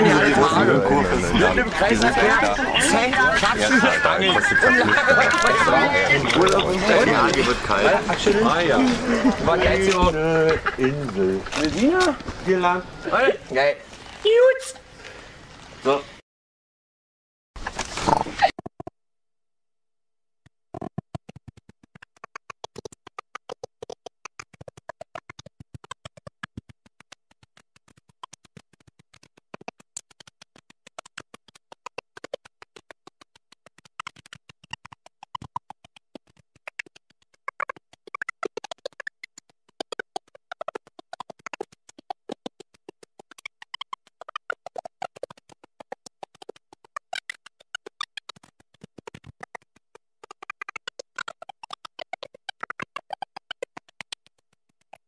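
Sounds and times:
stuttering glitch audio: 0.0s - 13.4s, 30.9s - 54.3s.

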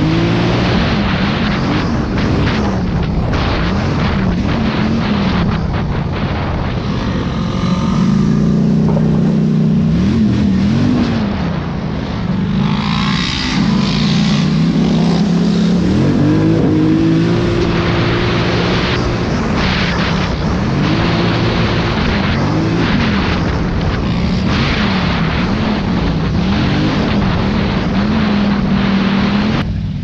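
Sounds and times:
wind on microphone: 0.0s - 12.6s
atv engine revving: 0.0s - 30.0s.

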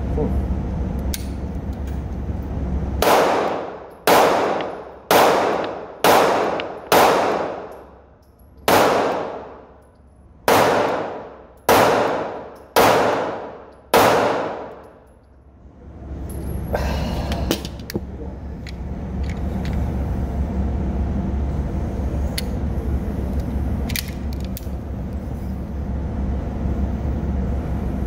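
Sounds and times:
pistol shots ringing: 3.0s - 7.9s, 8.6s - 9.7s, 10.5s - 14.9s.

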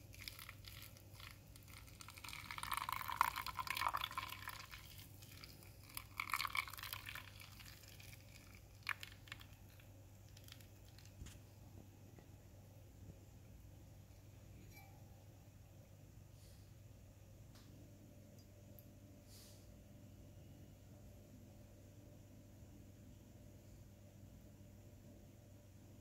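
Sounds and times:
water trickling onto coffee grounds: 0.0s - 11.5s.

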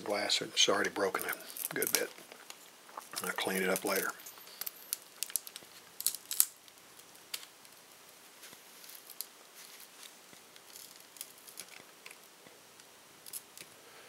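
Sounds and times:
glass clicking and crackling: 1.0s - 7.9s, 8.8s - 13.8s.

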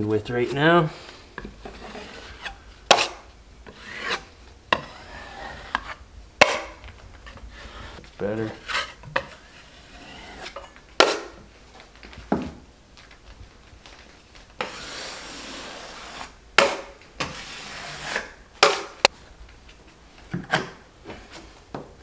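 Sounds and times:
drywall knife scraping: 0.3s - 11.4s, 14.6s - 19.1s.

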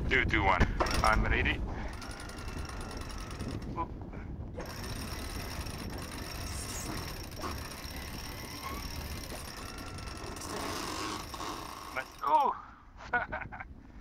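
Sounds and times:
wind rumble on microphone: 0.0s - 11.7s, 13.0s - 14.0s
sailboat winches turning: 0.8s - 12.7s
winch pawl clicks: 1.9s - 3.7s, 4.6s - 12.6s.

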